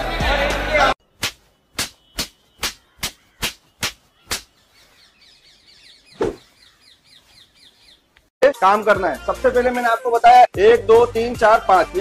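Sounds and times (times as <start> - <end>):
faint bird chirping: 1.4 - 8.3.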